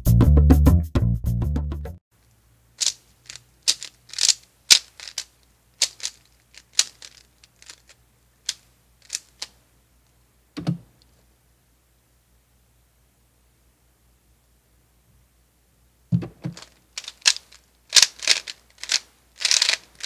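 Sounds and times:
plastic puzzle cube clicking: 0:02.8 - 0:09.6, 0:16.4 - 0:20.0
soft thump: 0:16.1 - 0:16.6.

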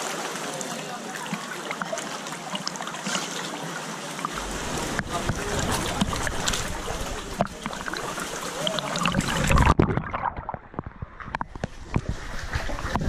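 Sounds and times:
sea water lapping and splashing: 0:00.0 - 0:13.0
muffled underwater sound: 0:04.0 - 0:13.0
bubbling clicks underwater: 0:04.2 - 0:13.0.

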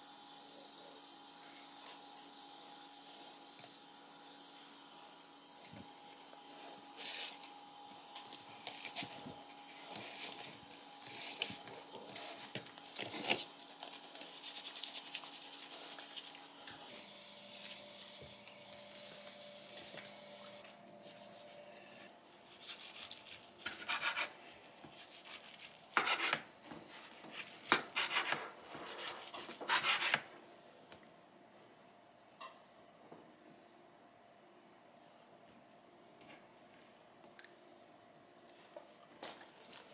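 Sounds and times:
knife sawing on cutting board: 0:23.6 - 0:24.4, 0:25.0 - 0:26.4, 0:27.0 - 0:30.2.

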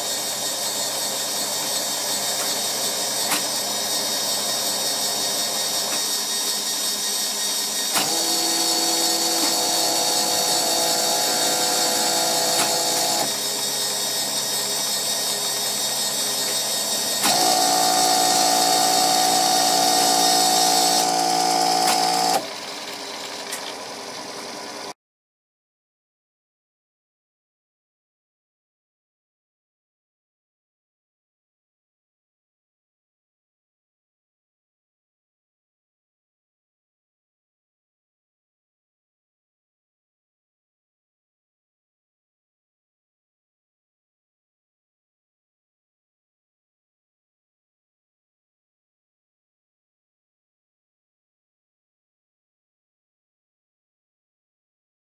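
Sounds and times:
geared motor whine: 0:00.0 - 0:25.0
small electric motors whirring: 0:00.0 - 0:25.0.

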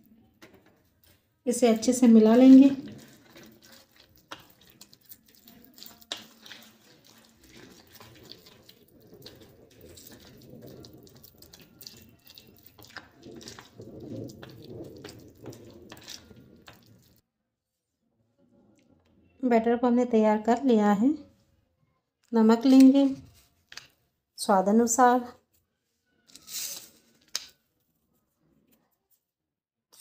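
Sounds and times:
spoon stirring thick batter: 0:00.0 - 0:17.2, 0:22.6 - 0:24.0.

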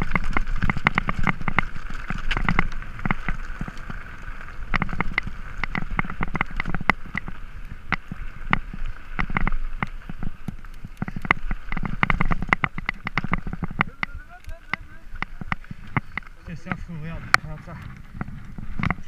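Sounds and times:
mountain bike clattering over rocks: 0:00.0 - 0:19.0.

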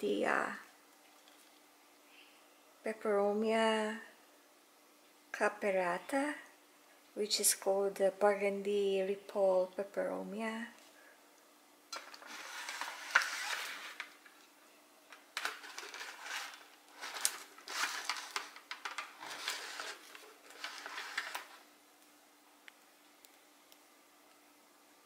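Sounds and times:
plant pot handling rustling: 0:15.4 - 0:21.6.

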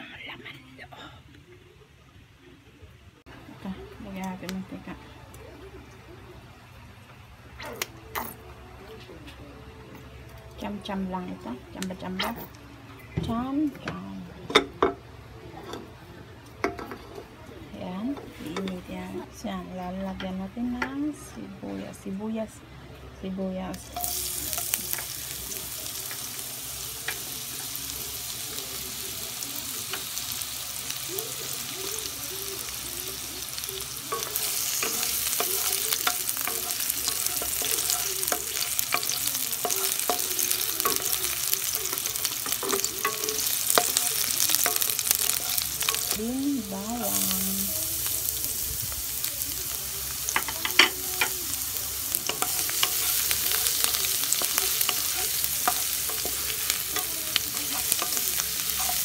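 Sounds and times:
onions sizzling in hot oil: 0:23.6 - 0:59.0.

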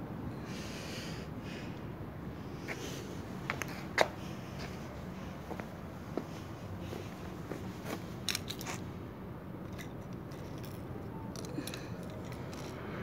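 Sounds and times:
plastic pens clicking on floor: 0:09.7 - 0:12.8.

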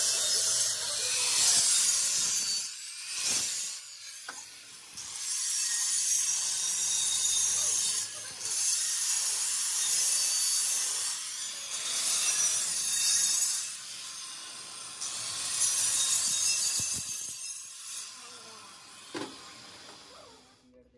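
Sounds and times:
angle grinder grinding steel: 0:00.0 - 0:20.5.

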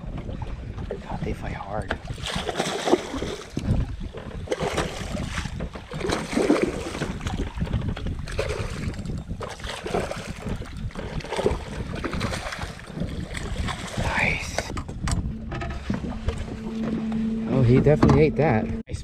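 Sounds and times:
wind buffeting microphone: 0:00.0 - 0:19.0
fish thrashing and splashing: 0:02.0 - 0:14.7.

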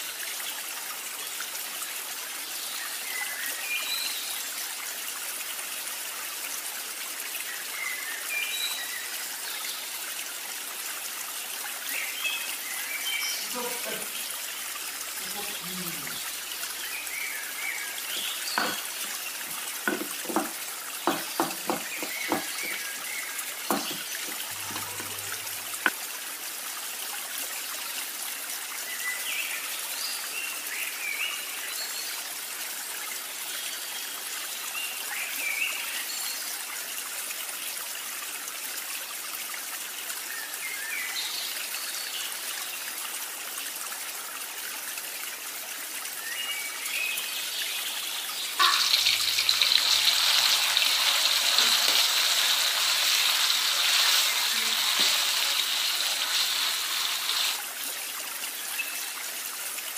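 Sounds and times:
pestle knocking in stone mortar: 0:18.6 - 0:18.9, 0:19.8 - 0:22.9, 0:23.7 - 0:25.1
steady hiss: 0:48.6 - 0:57.8.

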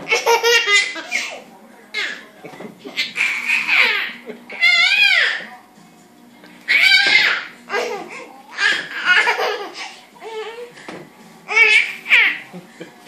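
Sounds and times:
baby laughing: 0:00.0 - 0:01.4, 0:02.9 - 0:05.4, 0:06.7 - 0:10.7, 0:11.5 - 0:12.6
man laughing: 0:04.1 - 0:04.6, 0:12.4 - 0:13.0.

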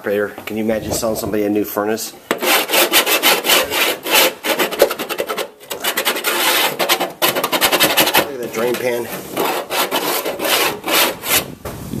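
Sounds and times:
hand scraping near microphone: 0:00.3 - 0:12.0.

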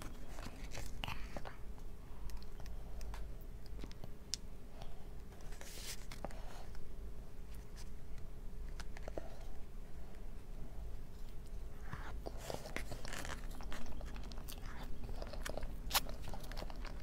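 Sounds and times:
soft squishing scrape: 0:05.3 - 0:06.8, 0:10.2 - 0:17.0.

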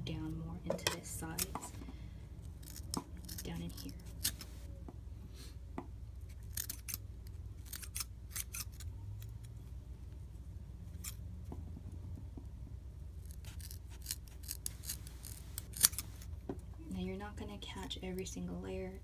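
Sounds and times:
scissors snipping fabric: 0:06.4 - 0:07.0, 0:07.6 - 0:09.3, 0:13.2 - 0:16.3.

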